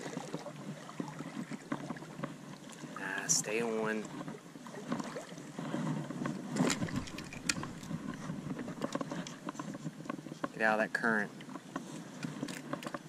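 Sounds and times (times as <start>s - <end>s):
stream water splashing: 0.0s - 5.7s, 6.4s - 9.2s.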